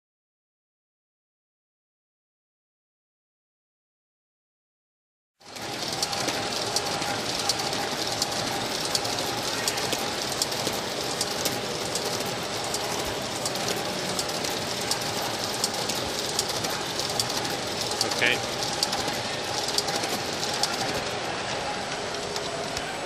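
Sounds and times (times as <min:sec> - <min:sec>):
machine mechanical clatter: 0:05.4 - 0:23.0
quick irregular clicks: 0:05.5 - 0:23.0.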